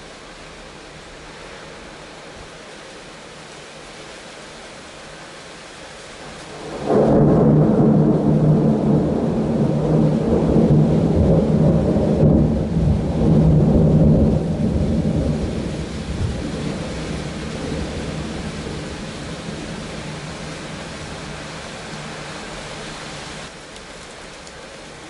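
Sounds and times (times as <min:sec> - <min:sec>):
rain hiss: 0:00.0 - 0:25.0
thunder rumbling: 0:06.5 - 0:22.4.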